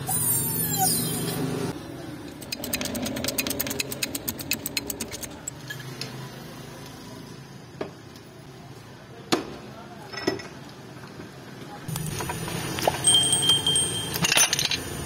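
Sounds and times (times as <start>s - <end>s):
rapid sharp metallic ticks: 2.3s - 5.6s.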